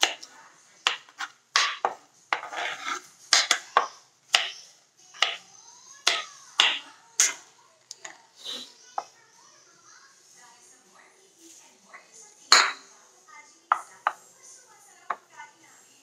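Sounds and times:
knife chopping on wooden board: 0.9 - 4.6, 5.2 - 5.4, 6.1 - 7.4.

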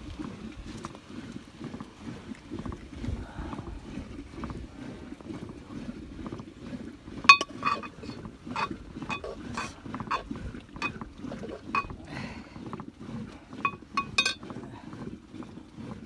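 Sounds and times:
metal spoon clinking in pot: 7.3 - 10.2, 13.6 - 14.4.

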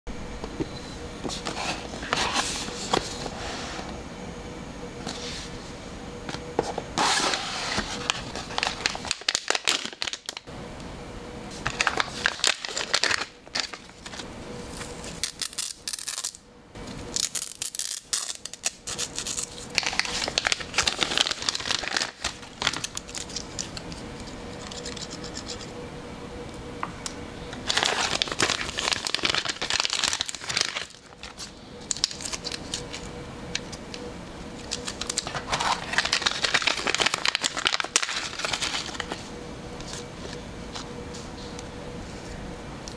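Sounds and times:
plastic bags crinkling: 8.0 - 10.4, 11.6 - 14.1, 17.2 - 23.9, 27.6 - 33.0, 34.6 - 39.2.

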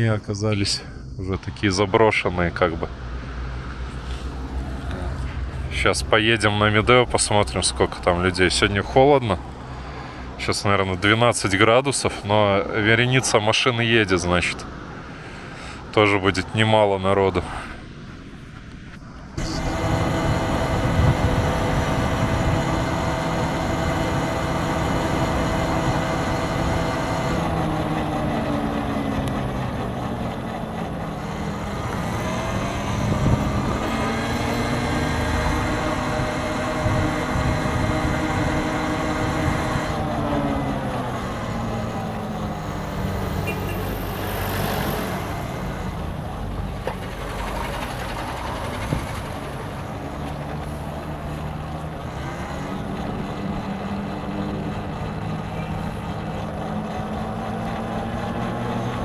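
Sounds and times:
electric vehicle driving hum: 0.0 - 59.0
sliding pitched tones: 18.3 - 59.0.

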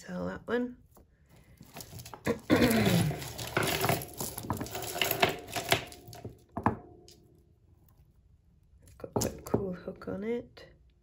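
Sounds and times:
jewellery rattling and clinking: 1.4 - 7.3.

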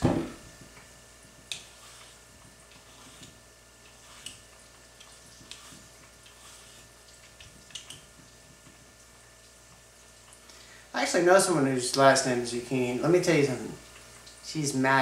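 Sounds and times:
faint steady hum: 0.0 - 15.0
vegetable peeler scraping: 1.4 - 8.1.

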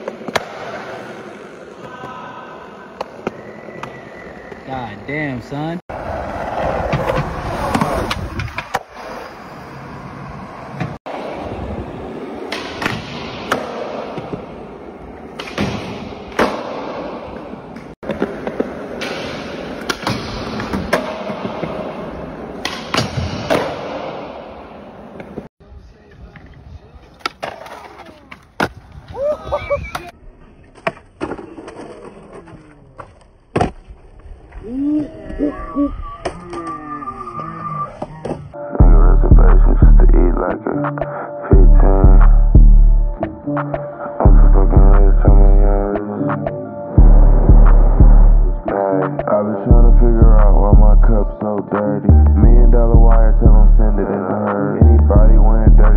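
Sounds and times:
skateboard wheels rolling on concrete: 0.0 - 22.6, 23.5 - 38.6
skateboard scraping: 5.9 - 12.5, 26.6 - 38.6.

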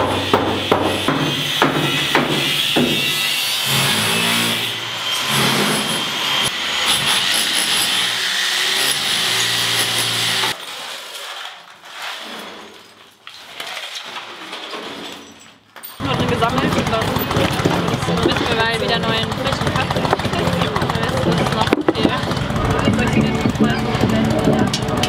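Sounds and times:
angle grinder cutting: 0.0 - 10.6, 16.0 - 25.0
rubble being shovelled and swept: 10.5 - 15.8.

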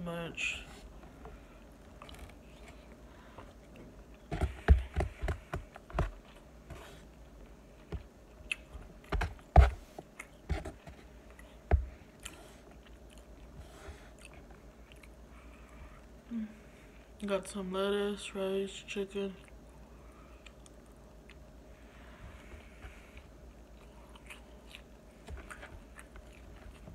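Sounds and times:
person chewing: 7.8 - 16.2, 19.4 - 21.5, 22.9 - 26.9.

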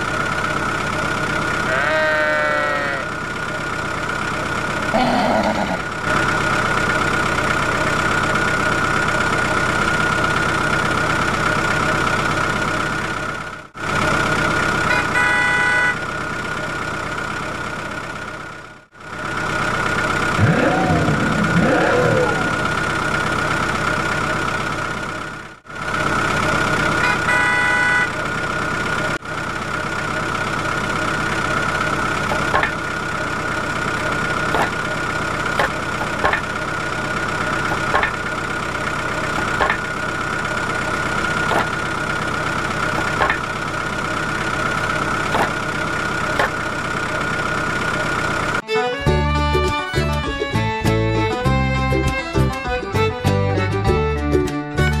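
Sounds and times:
tractor engine idling: 0.0 - 48.6
music: 48.6 - 55.0.

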